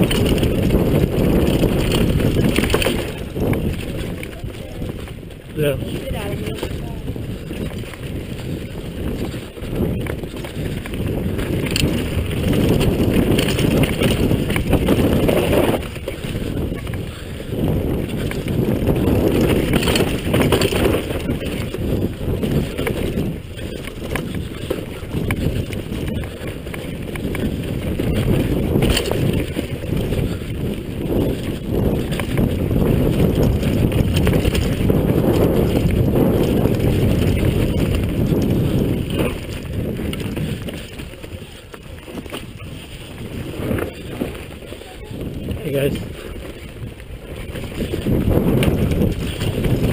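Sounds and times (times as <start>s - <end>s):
bike tyres on dirt: 0.0s - 49.9s
wind rumble on microphone: 0.0s - 49.9s
bike knocking over bumps: 17.6s - 30.4s.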